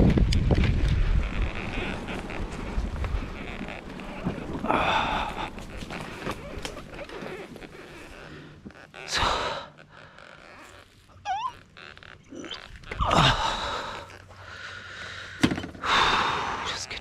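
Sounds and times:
man breathing heavily and sighing: 0:04.2 - 0:07.0, 0:08.1 - 0:10.0, 0:13.0 - 0:17.0.

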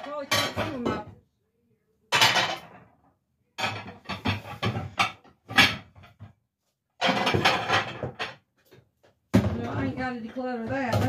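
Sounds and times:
plates clinking and clattering: 0:00.0 - 0:01.1, 0:02.1 - 0:03.0, 0:03.6 - 0:06.4, 0:07.0 - 0:08.8.

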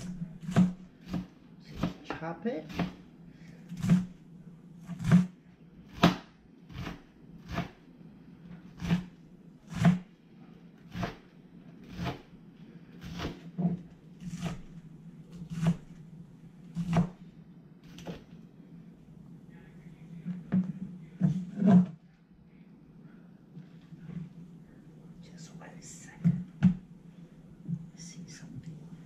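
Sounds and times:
knife chopping cabbage on board: 0:00.0 - 0:03.0, 0:03.8 - 0:04.1, 0:04.8 - 0:05.3, 0:05.9 - 0:07.8, 0:08.8 - 0:09.1, 0:09.7 - 0:10.0, 0:10.9 - 0:11.2, 0:11.8 - 0:12.3, 0:13.0 - 0:13.5, 0:14.2 - 0:14.7, 0:15.4 - 0:15.9, 0:16.8 - 0:17.2.

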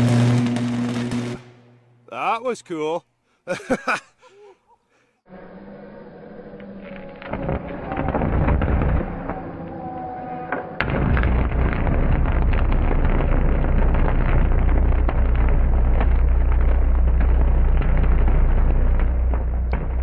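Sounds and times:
electric arc buzzing and crackling: 0:00.0 - 0:01.6, 0:10.9 - 0:20.0.

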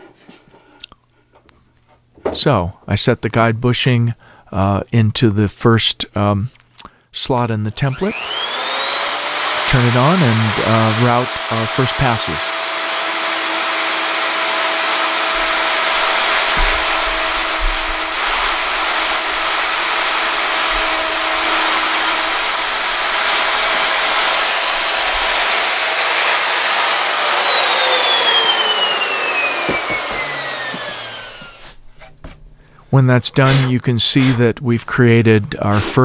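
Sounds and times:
router cutting wood: 0:07.8 - 0:31.8, 0:33.3 - 0:34.5
router motor winding down: 0:07.8 - 0:31.8.

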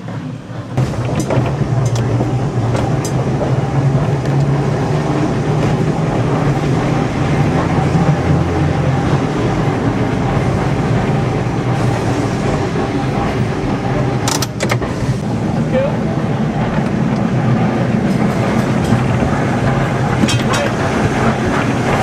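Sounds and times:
tram motor hum: 0:00.0 - 0:22.0
wheels rumbling on rails: 0:00.0 - 0:22.0.

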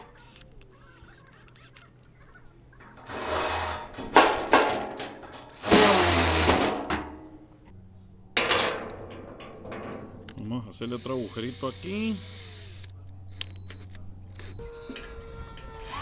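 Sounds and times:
power drill boring through sheet metal: 0:03.0 - 0:04.0, 0:05.3 - 0:06.9, 0:10.8 - 0:12.8, 0:15.2 - 0:16.0.

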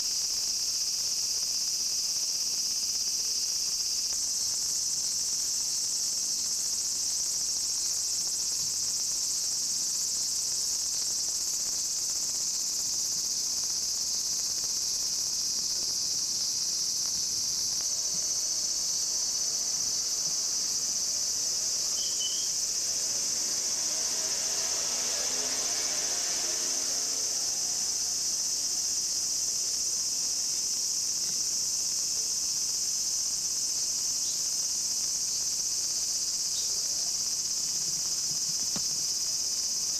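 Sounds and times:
cicadas singing: 0:00.0 - 0:39.9
distant engine hum: 0:17.8 - 0:29.2.

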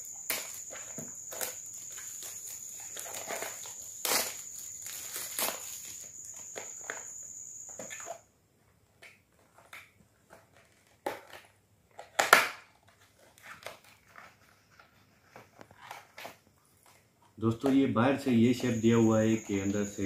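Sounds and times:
cardboard crackles: 0:00.0 - 0:07.1.

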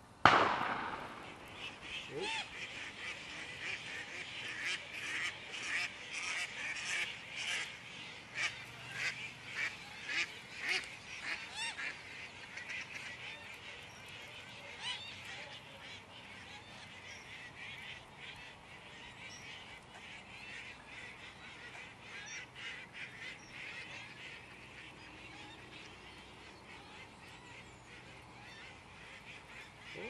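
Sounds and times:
flock of water birds calling: 0:00.0 - 0:30.0.

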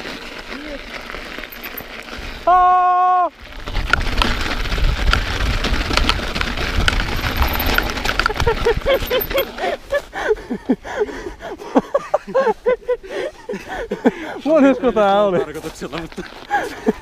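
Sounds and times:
bike rattling over bumps: 0:00.0 - 0:02.5, 0:03.3 - 0:10.6, 0:14.7 - 0:17.0
bike tyres crunching snow: 0:00.0 - 0:17.0
wind on microphone: 0:03.6 - 0:09.2.

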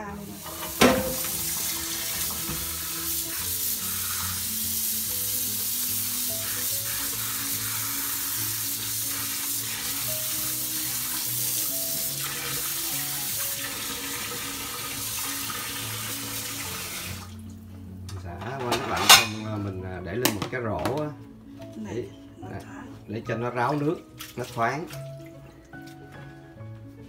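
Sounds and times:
background music: 0:00.0 - 0:27.0
tap running into sink: 0:00.4 - 0:03.4.

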